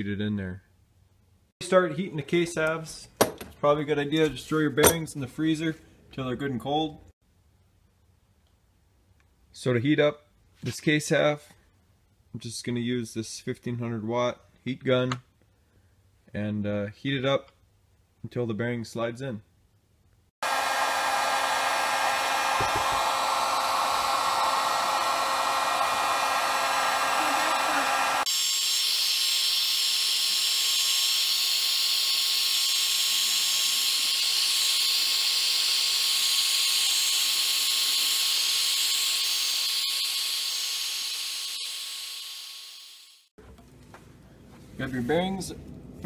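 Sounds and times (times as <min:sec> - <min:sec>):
heat gun blowing: 0:20.4 - 0:43.3.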